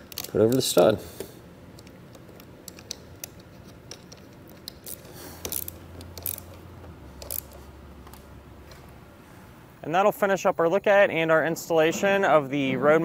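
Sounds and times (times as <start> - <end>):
small metal parts clicking: 0.0 - 0.9, 1.8 - 6.6, 7.2 - 7.6.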